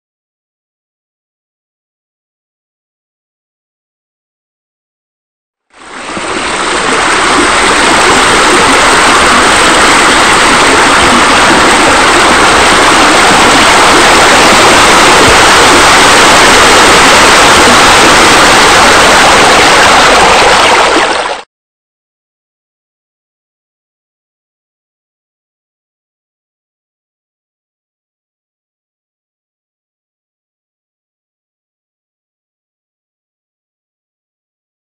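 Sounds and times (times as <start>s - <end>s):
running splashing water: 5.8s - 21.4s.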